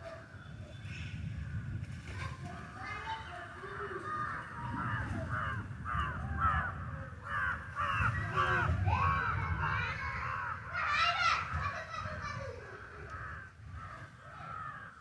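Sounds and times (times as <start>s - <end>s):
crows cawing: 3.7s - 8.8s, 12.6s - 15.0s.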